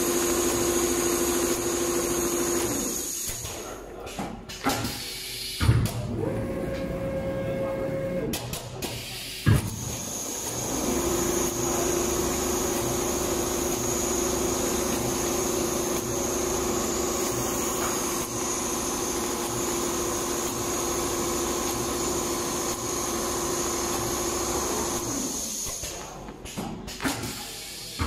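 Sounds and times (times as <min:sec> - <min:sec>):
sewing machine running: 0:00.0 - 0:03.2, 0:10.1 - 0:25.6.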